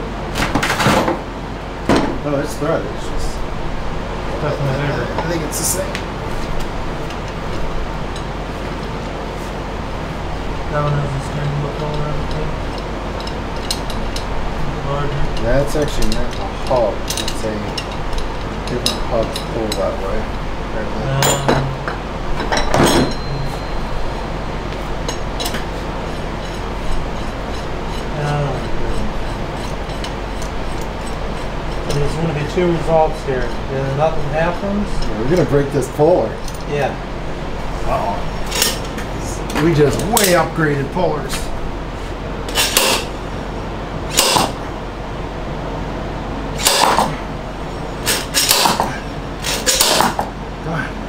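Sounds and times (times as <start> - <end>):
steady hum: 0.0 - 51.0
metal tools clinking: 15.3 - 20.0, 21.2 - 24.1, 38.4 - 39.0
socket wrench metallic bursts: 42.5 - 43.1, 44.1 - 44.6, 46.6 - 47.1, 48.1 - 50.2.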